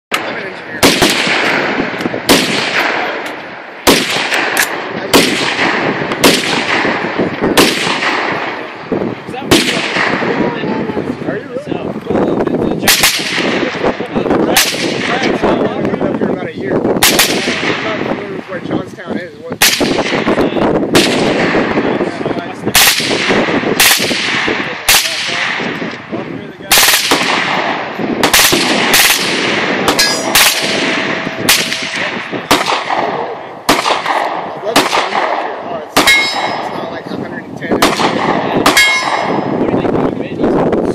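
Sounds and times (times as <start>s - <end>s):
suppressed rifle shots echoing: 0.1s - 8.9s, 9.5s - 10.4s, 12.9s - 13.9s, 26.7s - 36.9s, 37.8s - 39.6s
steady ringing tone: 29.9s - 32.0s, 36.1s - 36.9s, 38.8s - 39.6s.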